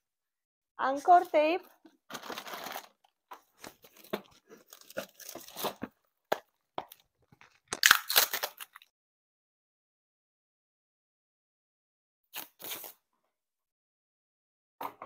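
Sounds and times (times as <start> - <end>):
tape tearing from roll: 7.7 - 8.8, 12.3 - 13.0.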